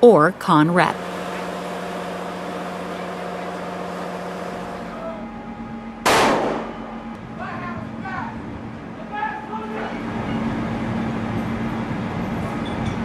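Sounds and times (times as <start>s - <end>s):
machinery hum with hiss: 0.0s - 13.0s
loud sharp rifle shot: 6.0s - 7.0s.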